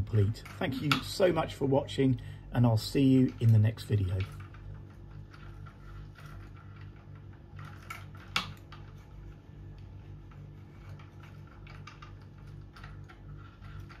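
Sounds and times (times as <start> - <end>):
wooden gears clicking and knocking: 2.9 - 9.1, 10.3 - 14.0.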